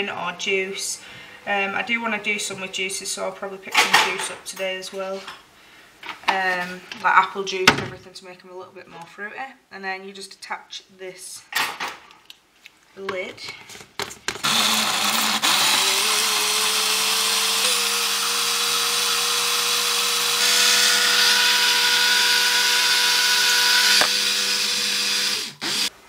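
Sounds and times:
blender motor whining: 0:14.4 - 0:26.0.

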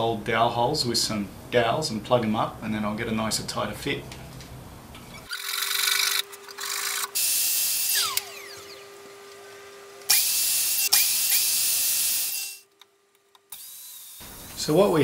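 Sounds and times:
mitre saw motor whining: 0:05.2 - 0:12.7, 0:13.5 - 0:14.6.

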